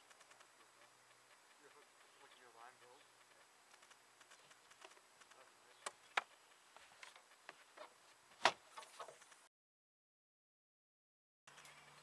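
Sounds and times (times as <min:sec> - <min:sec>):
sharp knocks and clicks: 0:00.0 - 0:09.4
faint outdoor background: 0:00.0 - 0:09.5, 0:11.5 - 0:12.0.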